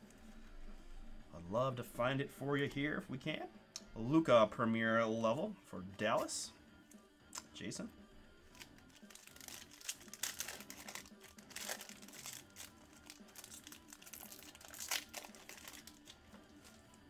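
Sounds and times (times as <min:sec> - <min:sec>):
foil wrapper crinkling and tearing: 0:08.5 - 0:17.0.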